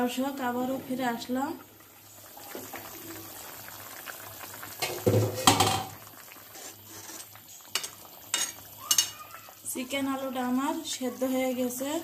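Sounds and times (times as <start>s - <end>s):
curry bubbling in pan: 0.0s - 12.0s
metal cookware clanking: 4.8s - 6.0s, 7.7s - 9.2s.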